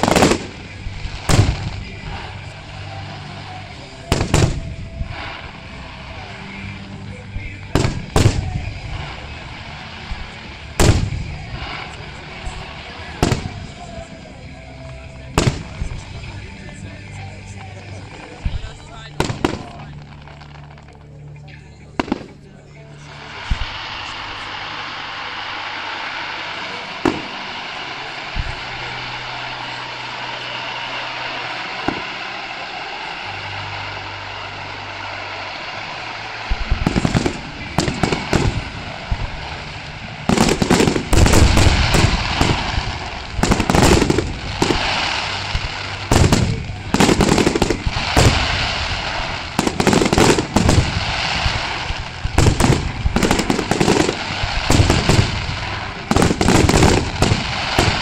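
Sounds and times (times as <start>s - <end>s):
scattered firework pops: 0.0s - 2.2s, 4.1s - 5.7s, 7.4s - 9.3s, 10.1s - 14.0s, 14.8s - 16.3s, 25.4s - 29.6s, 31.4s - 32.6s, 36.4s - 58.0s
fireworks crackling: 0.0s - 58.0s
firework shell bursts: 36.5s - 58.0s.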